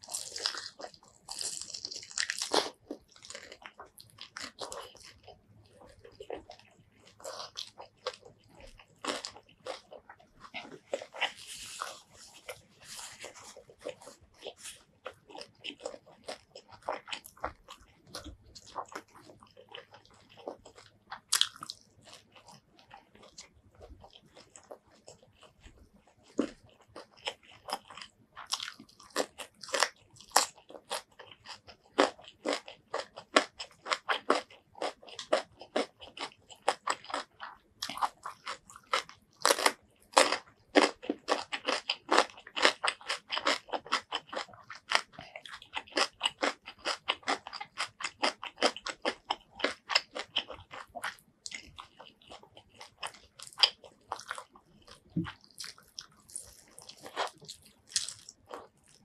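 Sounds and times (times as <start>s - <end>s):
crunching raw vegetables: 0.0s - 59.0s.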